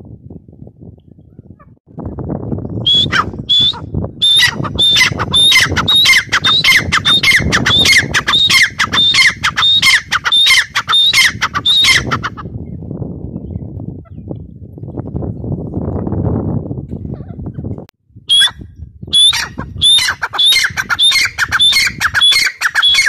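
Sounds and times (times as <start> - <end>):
francolin calling shrill notes: 2.9 - 12.2, 19.2 - 23.0.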